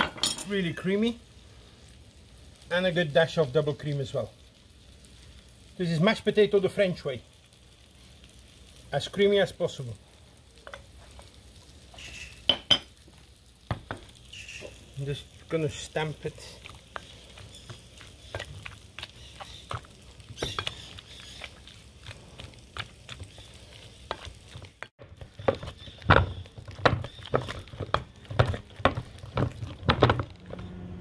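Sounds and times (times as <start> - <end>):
wet mashing strokes: 14.3 - 30.4.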